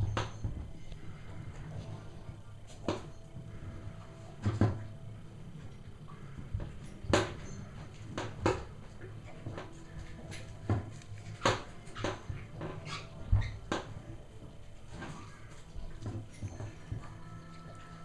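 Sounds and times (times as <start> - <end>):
puppies squeaking and whimpering: 11.9 - 13.6.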